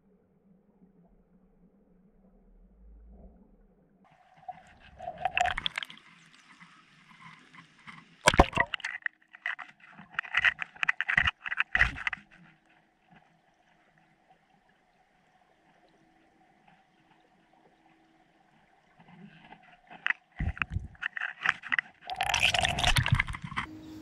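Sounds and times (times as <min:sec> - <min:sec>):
underwater clicks and knocks: 0:05.0 - 0:06.0, 0:07.9 - 0:13.3, 0:19.0 - 0:23.7
faint steady hum: 0:11.8 - 0:21.1.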